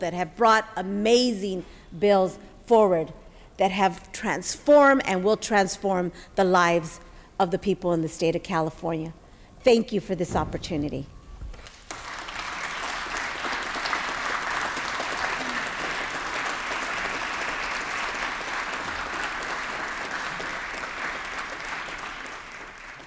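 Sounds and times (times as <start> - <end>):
crowd applauding: 11.6 - 23.0.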